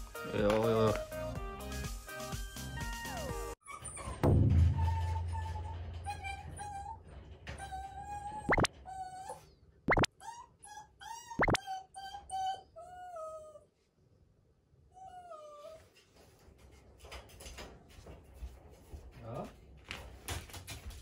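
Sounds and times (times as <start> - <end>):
puppy whimpering: 4.8 - 13.7, 14.9 - 16.0.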